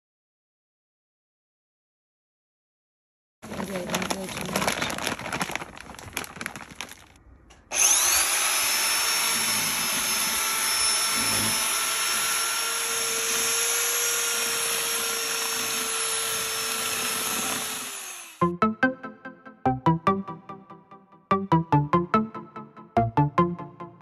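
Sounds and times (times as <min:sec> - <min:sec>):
powder pouring into plastic bucket: 0:03.4 - 0:07.2
drill with paddle mixer running: 0:07.7 - 0:18.4.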